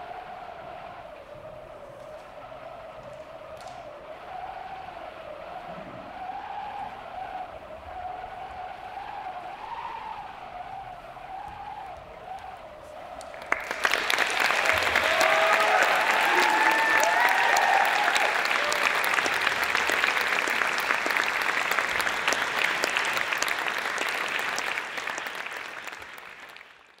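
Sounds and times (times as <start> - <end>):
shouted cheers: 13.2 - 25.7
audience applauding: 13.2 - 27.0.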